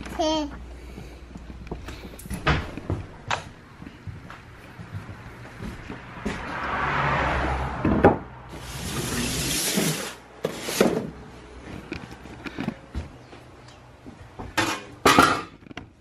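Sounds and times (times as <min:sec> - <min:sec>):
object scraping on wood: 0:08.5 - 0:11.2.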